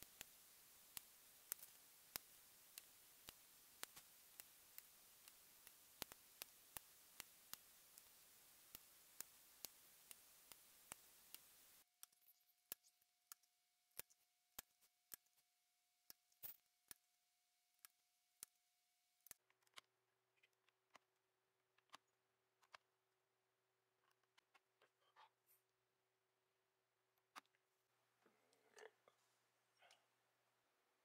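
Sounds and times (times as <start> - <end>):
steady hiss: 0.0 - 11.9.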